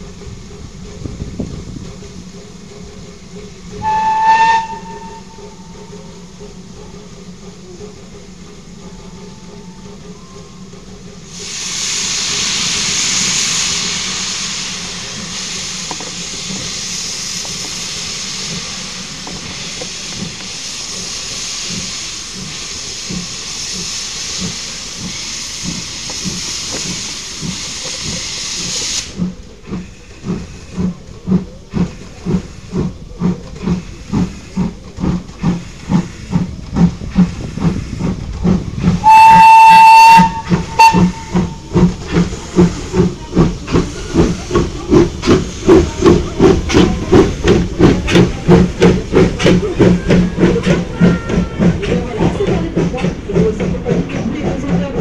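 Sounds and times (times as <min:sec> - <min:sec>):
hiss of escaping steam: 0:00.0 - 0:54.9
locomotive exhaust chuffs: 0:00.0 - 0:55.0
steam whistle blast: 0:03.8 - 0:05.6, 0:39.0 - 0:41.6.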